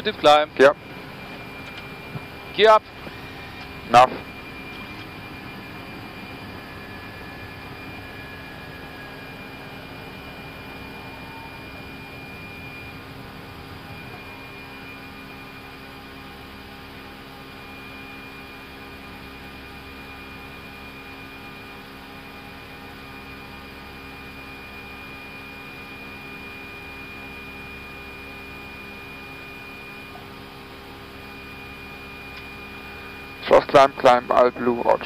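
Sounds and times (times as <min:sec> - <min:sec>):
low steady hums: 0:00.0 - 0:18.1
airflow and engine rush: 0:00.0 - 0:35.0
thin high whine: 0:00.0 - 0:35.0.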